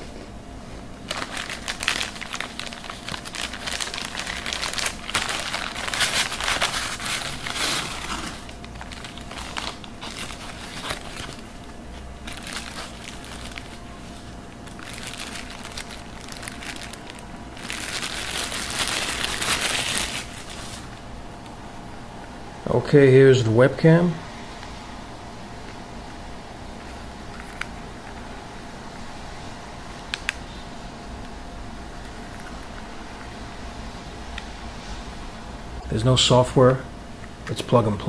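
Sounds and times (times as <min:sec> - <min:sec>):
plastic bag crinkling: 0:01.0 - 0:21.0
plastic packaging crinkling: 0:01.0 - 0:21.0.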